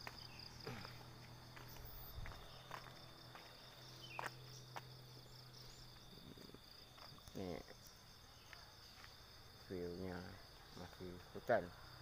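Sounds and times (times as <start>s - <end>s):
soft footsteps: 0.0s - 9.3s
night insects trilling: 0.0s - 12.0s.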